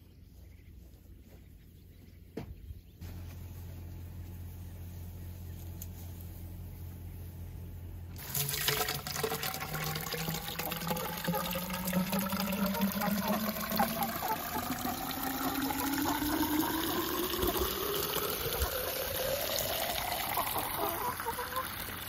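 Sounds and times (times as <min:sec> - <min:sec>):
water pouring into a pipe: 0:08.2 - 0:22.0.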